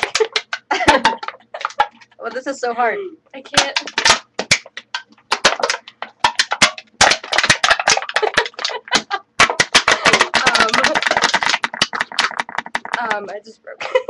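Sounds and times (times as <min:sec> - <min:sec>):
drink cans being crushed: 0:00.0 - 0:02.2, 0:03.5 - 0:13.3.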